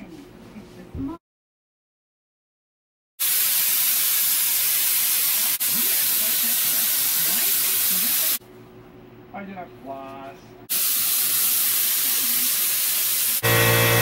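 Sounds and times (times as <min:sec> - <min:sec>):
spray gun hissing: 0:03.2 - 0:08.4, 0:10.7 - 0:14.0.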